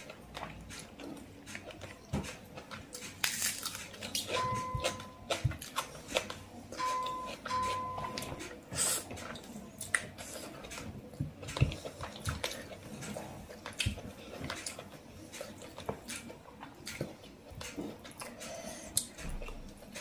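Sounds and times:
wet chewing and lip smacking: 0.0s - 20.0s.

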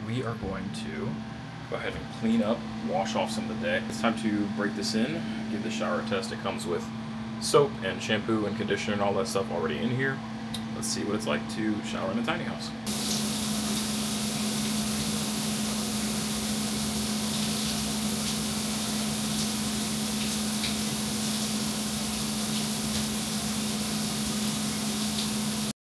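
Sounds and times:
steady low hum: 0.0s - 25.7s
shower water spraying and splashing: 12.9s - 25.7s.

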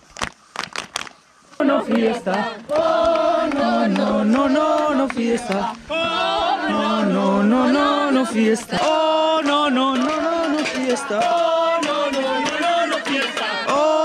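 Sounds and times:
man singing: 4.0s - 14.0s.

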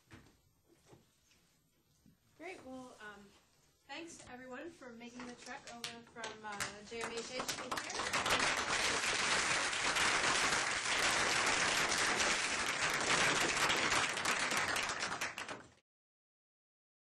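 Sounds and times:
audience applauding: 7.0s - 15.8s.

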